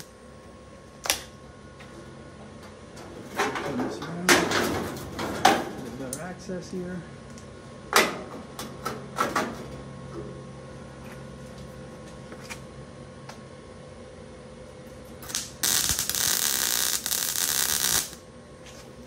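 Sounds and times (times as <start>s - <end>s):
low steady hum: 0.0s - 19.0s
welding arc crackling: 15.2s - 18.3s.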